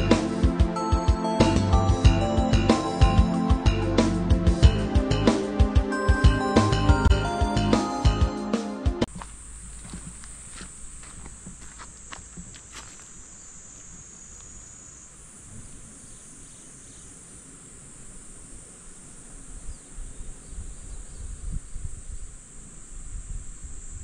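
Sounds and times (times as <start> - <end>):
insects droning: 9.0 - 24.0
wind rumble on microphone: 17.7 - 24.0.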